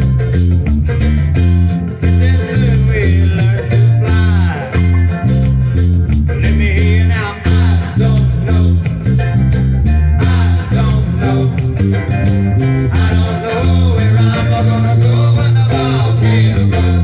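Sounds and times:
electric bass guitar plucking: 0.0 - 17.0
pop song with male vocals: 2.0 - 5.3, 6.3 - 9.3, 10.1 - 17.0.

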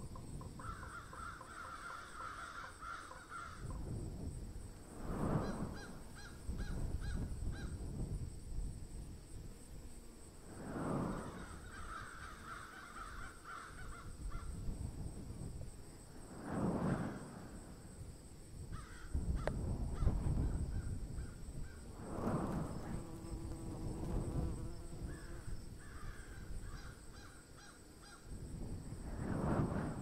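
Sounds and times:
crows cawing: 0.6 - 3.7, 11.7 - 14.4, 18.8 - 19.1.

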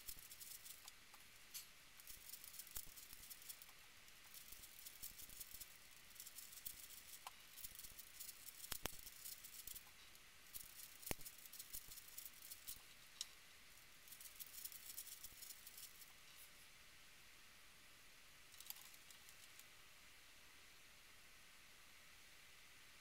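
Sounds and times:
puzzle cube clicking and rattling: 0.0 - 0.9, 2.0 - 9.9, 10.5 - 12.8, 14.1 - 16.1.

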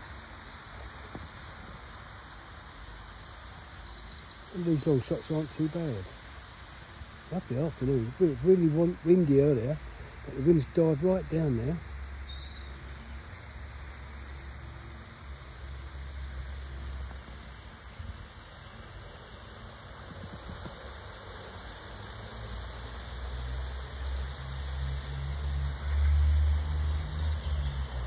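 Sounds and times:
small bird chirping: 3.0 - 22.7
wind rumble on microphone: 19.9 - 20.9.

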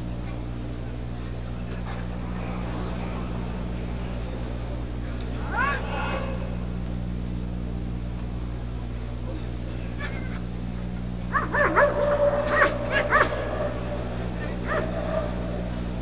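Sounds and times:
dog yelping: 11.3 - 15.5.

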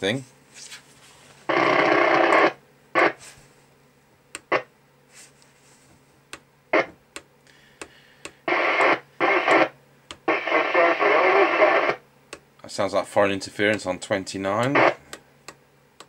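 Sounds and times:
radio static hiss bursts: 1.5 - 3.4, 4.4 - 4.7, 6.7 - 7.0, 7.9 - 12.0, 14.5 - 15.1.

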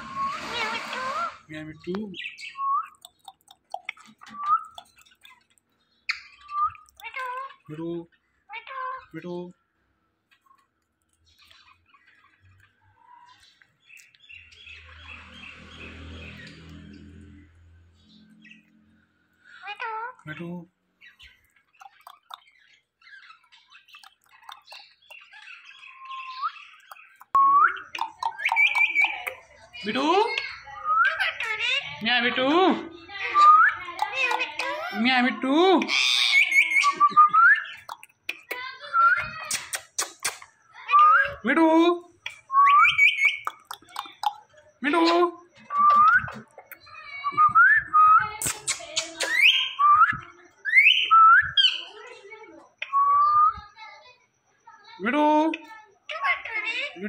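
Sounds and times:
loud rising parakeet call: 0.0 - 1.5
parakeet rising whistle: 0.0 - 1.5
parakeet whistling: 0.0 - 1.5, 25.8 - 29.5, 33.2 - 34.8, 35.9 - 38.0, 38.8 - 41.4, 42.3 - 44.4, 45.7 - 51.9
parakeets chattering and chirping: 0.0 - 57.0.

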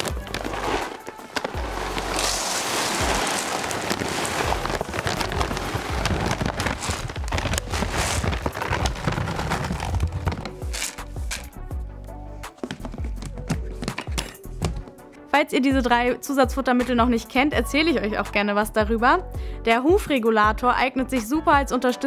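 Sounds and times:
dry feed pouring into bucket: 0.0 - 11.5.

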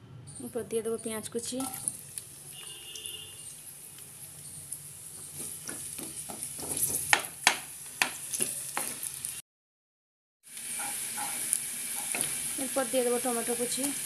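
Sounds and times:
onions sizzling in hot oil: 1.3 - 2.7, 3.3 - 9.4, 10.4 - 14.0
wooden spatula scraping a pan: 5.2 - 7.1, 10.8 - 12.4.

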